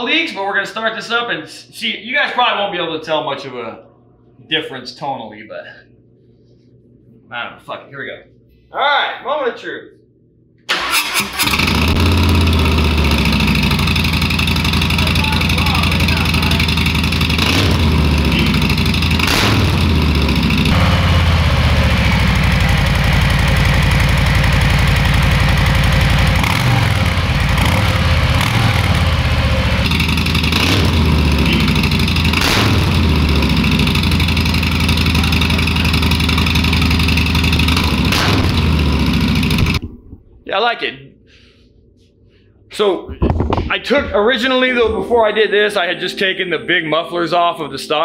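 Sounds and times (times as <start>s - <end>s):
motorcycle engine idling loudly: 11.4s - 39.8s.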